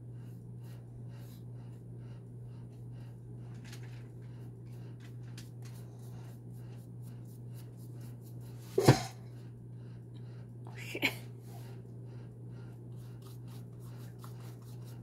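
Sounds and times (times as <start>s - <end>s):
steady low hum: 0.0s - 15.0s
paintbrush scratchy strokes: 5.7s - 8.7s, 12.9s - 15.0s.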